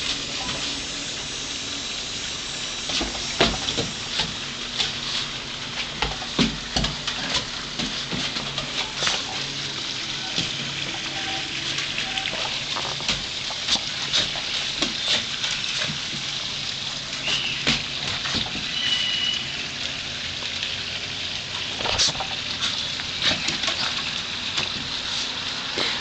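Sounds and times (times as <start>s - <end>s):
steady hiss: 0.0s - 19.8s.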